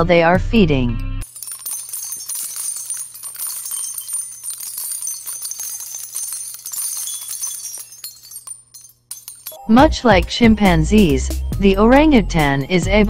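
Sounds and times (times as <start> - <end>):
small bells jingling: 1.2 - 11.5.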